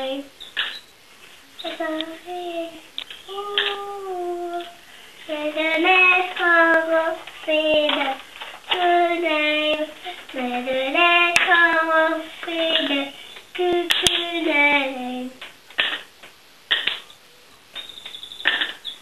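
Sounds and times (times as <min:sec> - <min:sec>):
child singing: 0:00.0 - 0:00.3, 0:01.6 - 0:15.4
sharp clicks: 0:12.7 - 0:19.0.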